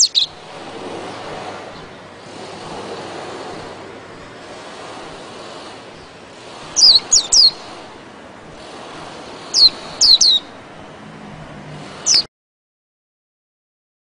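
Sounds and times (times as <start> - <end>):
bird chirping high: 0.0 - 2.3, 5.9 - 8.0, 9.4 - 10.6, 12.0 - 12.3.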